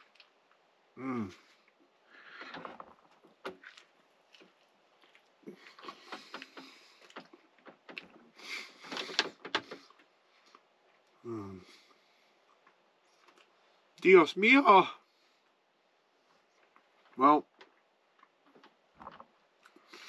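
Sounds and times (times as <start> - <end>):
chewing food: 0.0 - 0.6, 2.4 - 8.1, 11.8 - 14.0, 16.2 - 20.0
person humming mmm: 1.0 - 1.5, 11.3 - 11.7.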